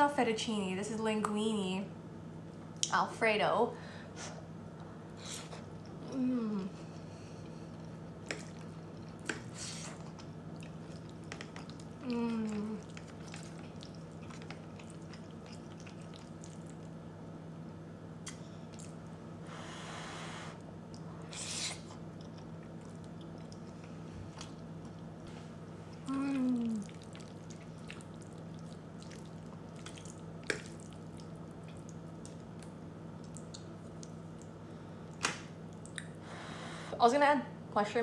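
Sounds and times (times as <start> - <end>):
steady low hum: 0.0 - 38.0
person humming: 6.0 - 7.0, 12.0 - 12.8, 26.0 - 26.9
wet chewing: 7.4 - 17.0, 20.9 - 25.1, 25.9 - 36.2.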